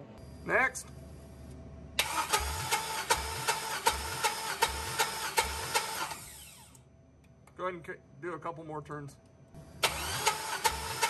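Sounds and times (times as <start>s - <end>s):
starter motor cranking engine: 2.0s - 6.8s, 9.8s - 11.0s.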